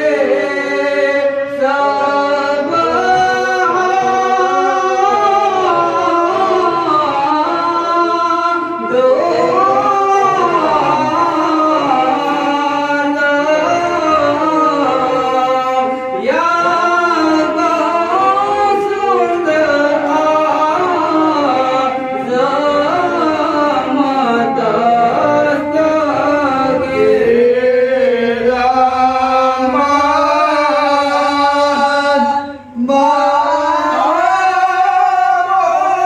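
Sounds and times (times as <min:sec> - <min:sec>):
man singing into a microphone: 0:00.0 - 0:36.0.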